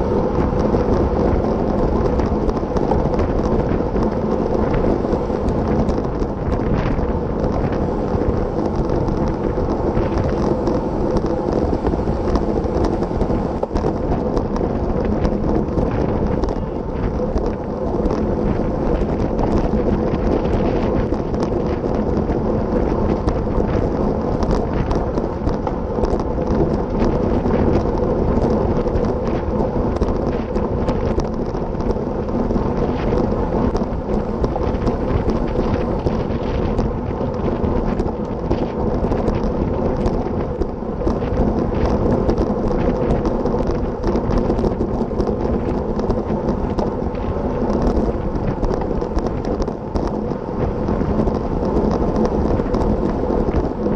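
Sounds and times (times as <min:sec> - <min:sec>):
steady rolling hum: 0:00.0 - 0:53.9
wind buffeting microphone: 0:00.0 - 0:53.9.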